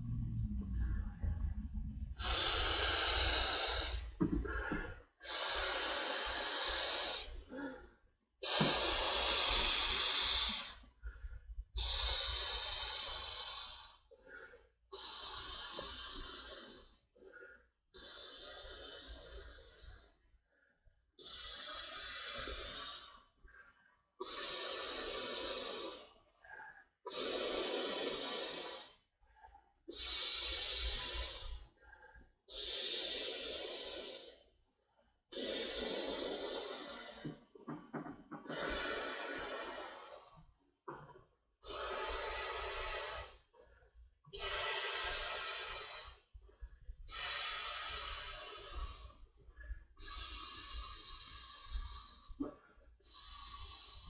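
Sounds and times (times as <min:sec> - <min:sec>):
man blowing into balloon: 0:05.2 - 0:07.4, 0:08.4 - 0:10.8, 0:29.9 - 0:31.6, 0:38.4 - 0:40.4, 0:41.6 - 0:43.4, 0:47.1 - 0:49.2, 0:50.0 - 0:52.4, 0:53.0 - 0:54.0.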